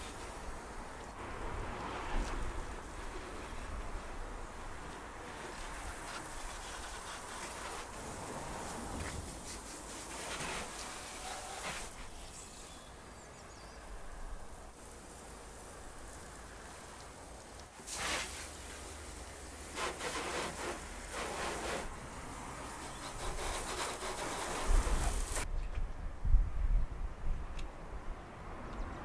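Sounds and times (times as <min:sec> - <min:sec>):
pressure washer spraying: 0:05.3 - 0:12.7, 0:14.8 - 0:25.5.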